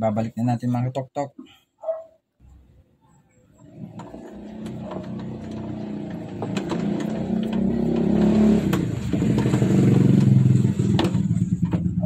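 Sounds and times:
three-wheeler engine revving: 3.5 - 12.0.

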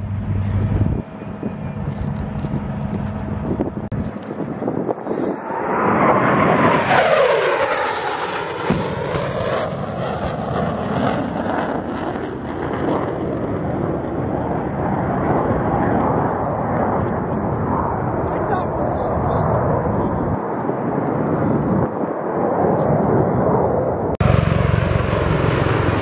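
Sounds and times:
jet aircraft passing low: 0.0 - 26.0
pyrotechnic bang: 5.0 - 13.7.

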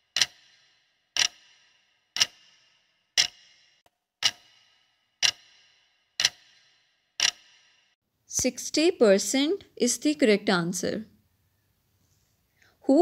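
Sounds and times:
clock ticks: 0.0 - 7.8.

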